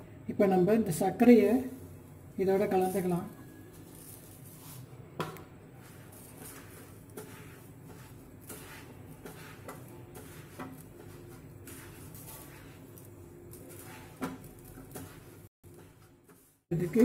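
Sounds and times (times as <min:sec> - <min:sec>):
hand mixing dough in metal bowl: 0:02.4 - 0:05.0, 0:05.7 - 0:17.0
soft scraping: 0:05.8 - 0:14.3.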